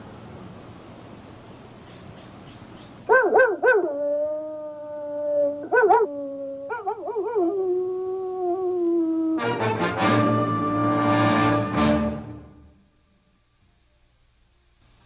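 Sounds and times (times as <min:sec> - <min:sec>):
wolf howling: 0:03.4 - 0:09.6
orchestral music: 0:09.4 - 0:12.8.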